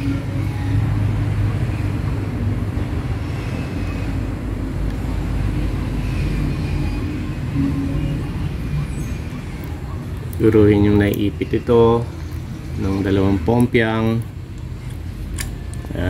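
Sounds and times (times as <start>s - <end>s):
hum: 0.0s - 10.4s.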